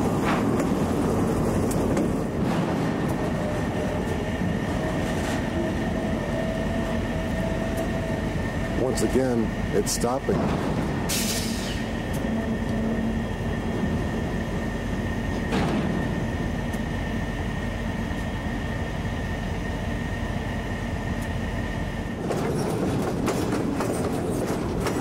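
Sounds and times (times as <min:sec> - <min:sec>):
train wheels clattering over rail joints: 0:00.0 - 0:09.4, 0:15.2 - 0:17.0, 0:22.1 - 0:25.0
locomotive engines rumbling with whine: 0:00.0 - 0:25.0.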